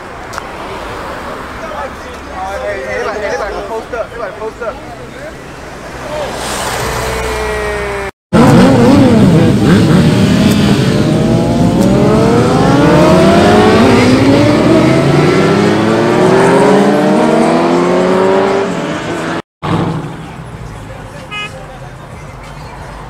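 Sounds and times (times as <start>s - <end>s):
motorcycles revving past: 6.0s - 20.0s.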